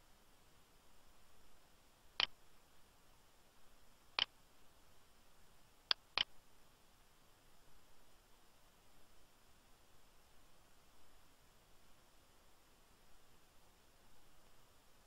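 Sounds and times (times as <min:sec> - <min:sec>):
computer mouse clicking: 0:05.9 - 0:06.3.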